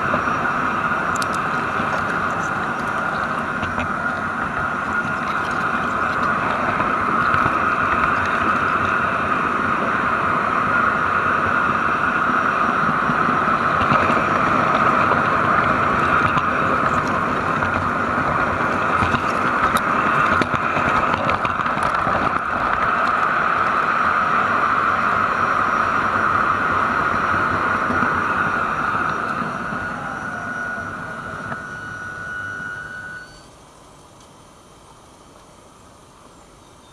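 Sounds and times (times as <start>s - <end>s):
wheels rattling on rails: 0.0s - 32.8s
model train motor whine: 0.0s - 34.3s.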